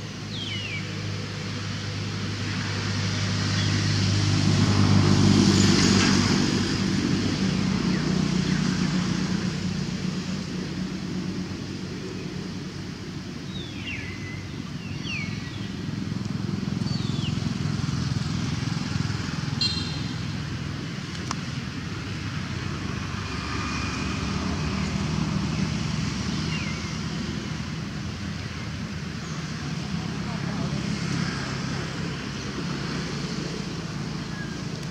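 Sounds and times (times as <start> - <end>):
distant traffic rumble: 0.0 - 34.9
high falling chirps: 19.6 - 20.4.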